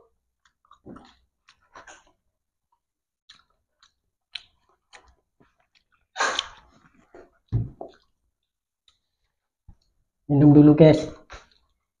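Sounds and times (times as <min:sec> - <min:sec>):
people chewing: 0:00.1 - 0:10.2, 0:11.2 - 0:12.0
wet mouth clicks and smacks: 0:00.4 - 0:08.2.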